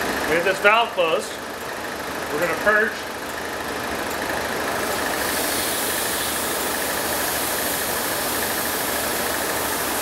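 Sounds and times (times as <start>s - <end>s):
car engine idling: 0.0s - 10.0s
refrigerant hissing from hose: 4.8s - 10.0s.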